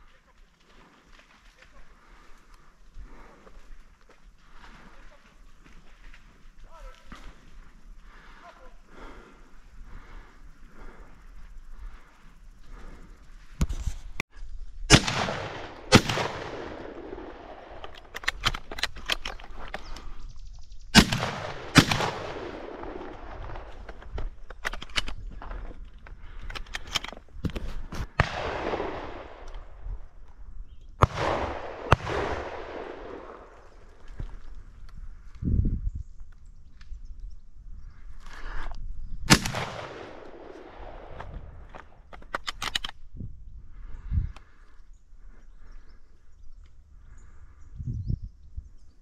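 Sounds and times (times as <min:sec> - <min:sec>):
shotgun shots with rolling echo: 0:14.9 - 0:18.1, 0:21.0 - 0:23.8, 0:28.1 - 0:29.8, 0:31.0 - 0:33.6, 0:39.3 - 0:41.6.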